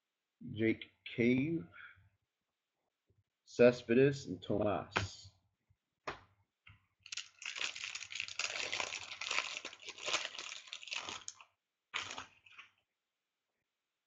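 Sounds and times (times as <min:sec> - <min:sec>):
wrapper tearing open: 0:07.1 - 0:12.7
wrapper crinkling: 0:07.1 - 0:12.8.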